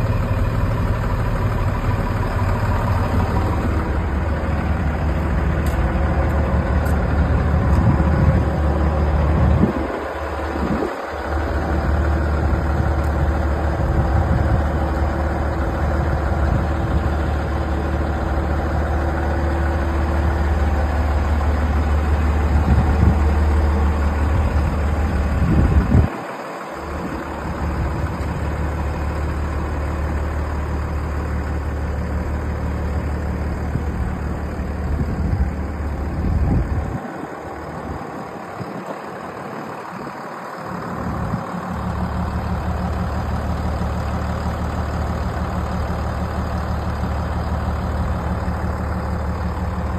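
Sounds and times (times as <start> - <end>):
heavy vehicle engine idling: 0.0 - 49.9
wind rumbling on microphone: 7.3 - 11.0, 22.5 - 26.2, 34.8 - 37.2.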